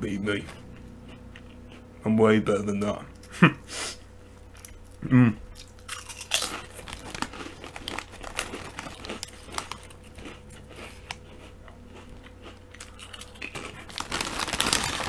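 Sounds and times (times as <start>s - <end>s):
crisps crunching being chewed: 4.5s - 15.0s
crisp packet crinkling: 5.9s - 10.3s, 12.8s - 15.0s.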